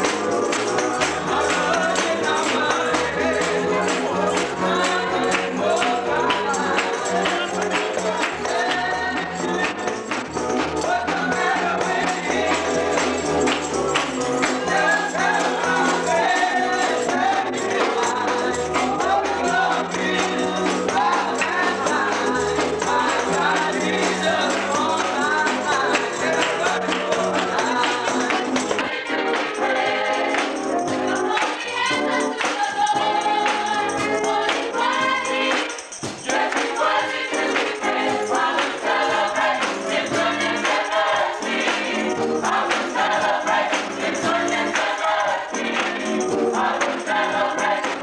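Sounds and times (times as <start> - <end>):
people singing gospel: 0.0 - 48.0
tambourine beat: 0.0 - 48.0
man singing lead: 14.5 - 28.6.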